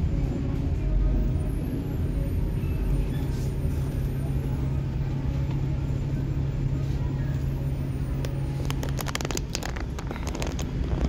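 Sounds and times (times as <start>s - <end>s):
bus engine idling: 0.0s - 11.0s
sharp clicks and rattles: 8.6s - 11.0s.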